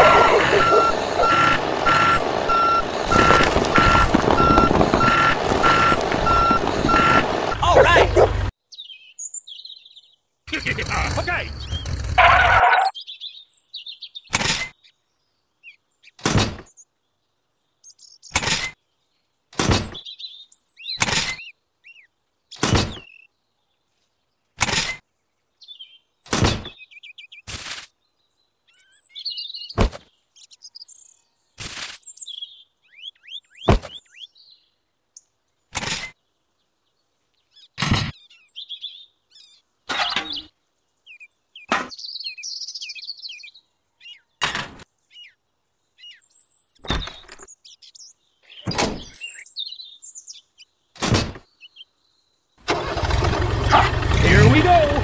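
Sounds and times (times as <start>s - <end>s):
small objects knocking in plastic trailer: 2.9s - 7.4s.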